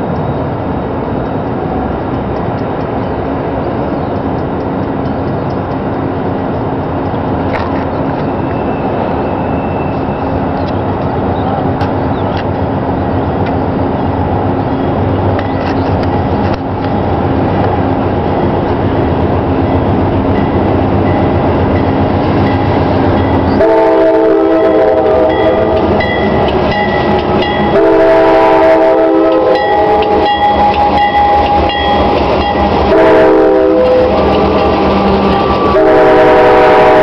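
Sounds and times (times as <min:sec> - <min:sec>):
train rumbling: 0:00.0 - 0:37.0
locomotive bell ringing: 0:19.5 - 0:37.0
locomotive air horn blasts: 0:23.5 - 0:25.9, 0:27.6 - 0:31.6, 0:32.8 - 0:37.0.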